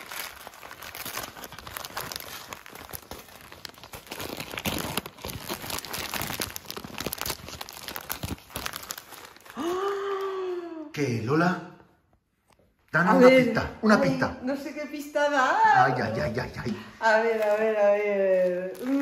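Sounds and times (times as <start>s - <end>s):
wrapping paper crinkling: 0.0s - 10.3s, 16.1s - 19.0s.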